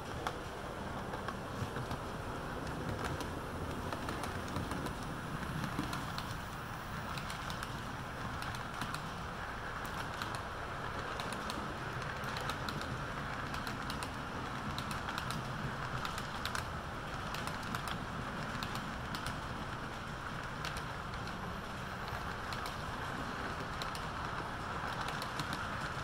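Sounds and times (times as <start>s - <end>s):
model train cars rolling: 0.0s - 26.0s
wheels clicking over track: 0.0s - 26.0s.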